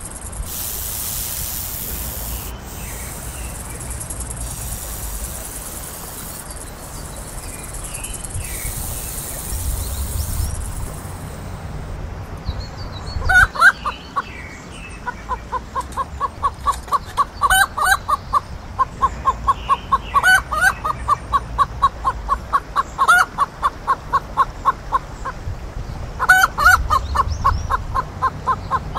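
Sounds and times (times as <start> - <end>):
hen cackling squawk: 13.3 - 13.9, 26.2 - 28.9
hen clucking: 15.0 - 25.4, 26.2 - 28.9.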